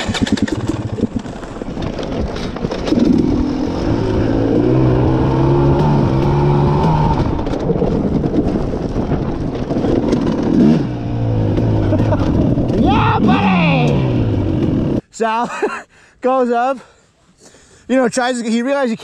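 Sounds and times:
dirt bike engine revving: 0.0s - 1.9s, 2.8s - 7.5s, 9.6s - 15.0s.

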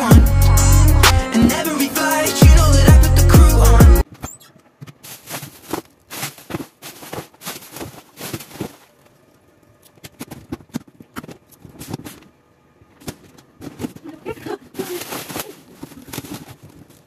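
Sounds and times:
plastic bag rustling and crinkling: 4.9s - 9.2s, 13.0s - 17.0s.

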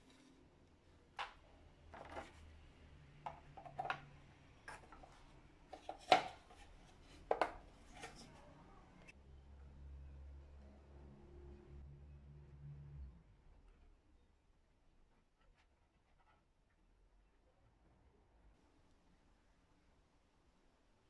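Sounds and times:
plastic clicks and knocks: 7.3s - 8.2s.

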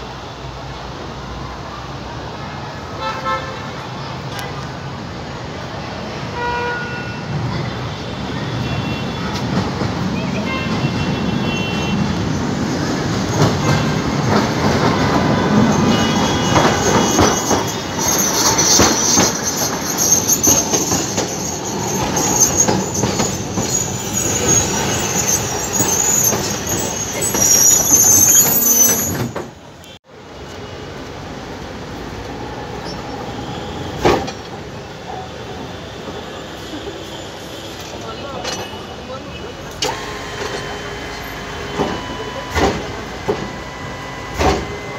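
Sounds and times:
tram wheels rumbling and clacking: 7.2s - 44.9s
high-pitched wheel squeal: 15.8s - 29.6s.

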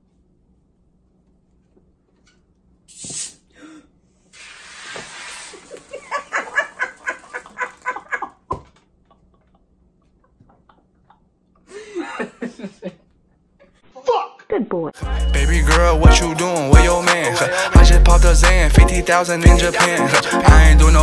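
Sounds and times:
soda bottle opening hiss: 2.9s - 3.5s, 4.3s - 6.0s
person laughing: 5.5s - 13.1s.

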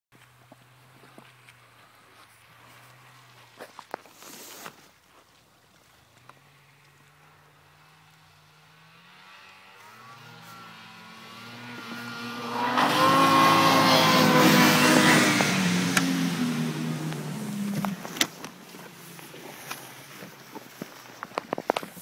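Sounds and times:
snowmobile engine running hard: 8.5s - 20.8s.

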